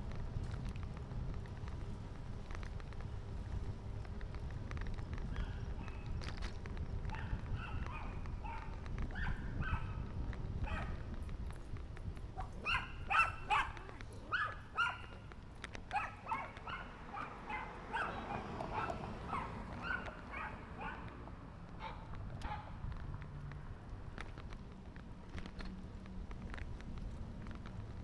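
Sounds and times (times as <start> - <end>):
dog barking: 7.1 - 10.0, 10.6 - 11.0, 12.4 - 15.2, 15.9 - 21.1, 21.8 - 22.7.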